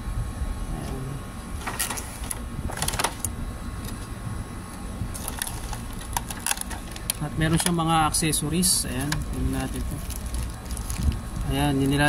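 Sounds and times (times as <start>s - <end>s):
plastic packaging crinkling: 5.1s - 7.8s, 8.8s - 12.0s.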